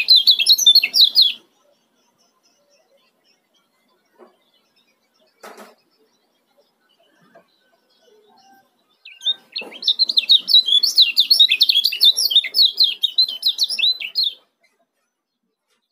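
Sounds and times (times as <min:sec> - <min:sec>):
bird singing high chirps: 0:00.0 - 0:15.9.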